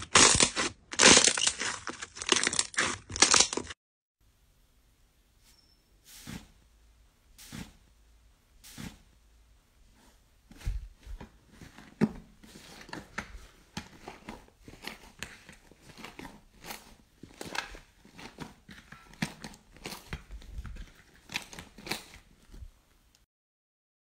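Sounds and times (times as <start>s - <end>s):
slime squishing and crackling: 0.0s - 3.8s, 11.6s - 22.5s.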